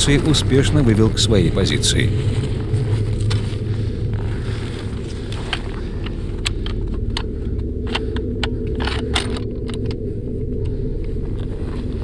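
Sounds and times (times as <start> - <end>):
gear clinking: 0.0 - 10.7
low rumble: 0.0 - 12.0
footsteps crunching on rocks: 0.1 - 7.1.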